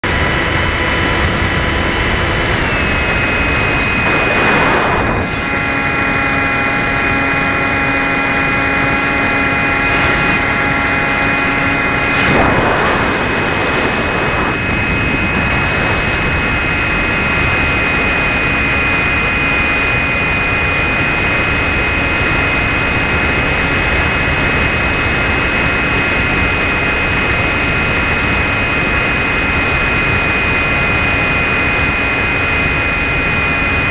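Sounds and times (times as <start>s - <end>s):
electric motor high whine: 0.0s - 33.9s
rushing air noise: 0.4s - 18.3s.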